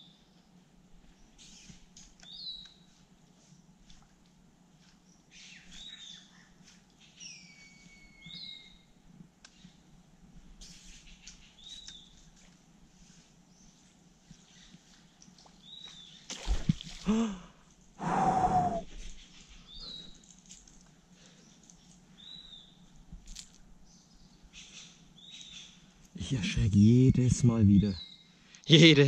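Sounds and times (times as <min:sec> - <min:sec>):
fish splashing in water: 0:16.3 - 0:17.1.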